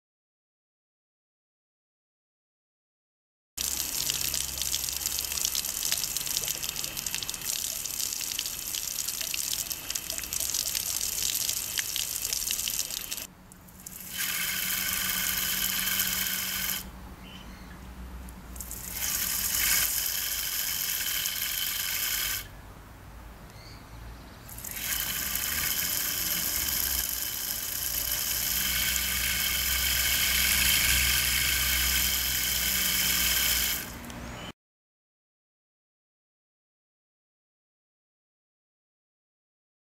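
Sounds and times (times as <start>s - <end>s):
water spray hissing from hose: 3.6s - 16.9s, 18.6s - 22.5s, 24.5s - 34.0s
turbine whirring: 14.0s - 16.9s.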